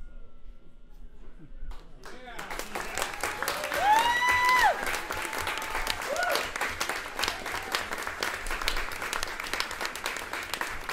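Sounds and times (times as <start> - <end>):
audience applauding: 2.0 - 10.9
crowd whoop: 2.9 - 8.0.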